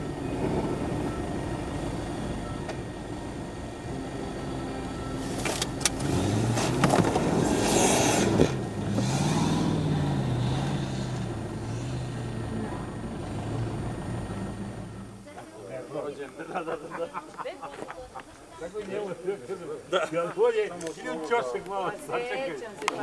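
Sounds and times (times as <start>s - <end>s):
suv engine revving: 0.0s - 15.2s.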